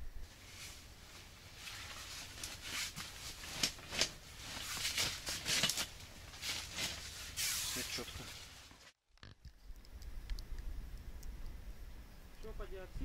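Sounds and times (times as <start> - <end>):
rustling of clothing and straw: 0.2 - 9.0.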